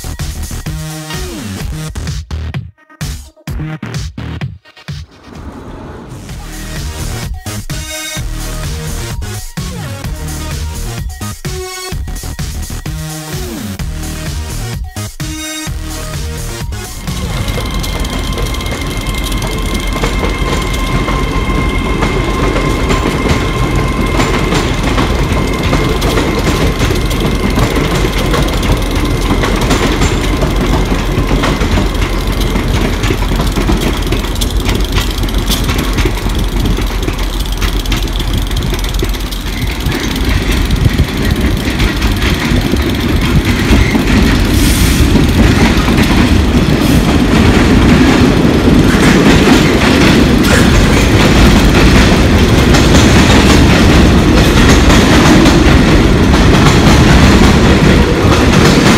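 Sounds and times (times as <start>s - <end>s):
train rumble: 5.1s - 15.0s, 15.6s - 58.9s
train wheels clattering on rails: 15.7s - 58.9s.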